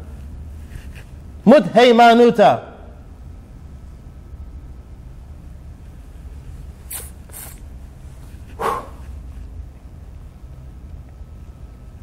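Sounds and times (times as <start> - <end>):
soft hisses: 6.6 - 9.1.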